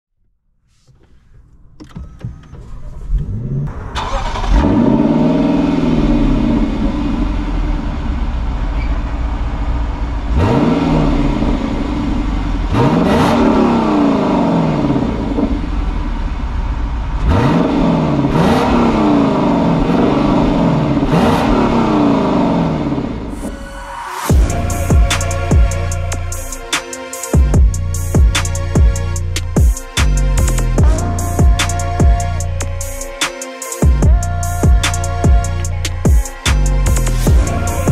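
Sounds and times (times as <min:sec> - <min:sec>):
car engine revving and accelerating: 0:03.1 - 0:26.7, 0:36.6 - 0:37.9.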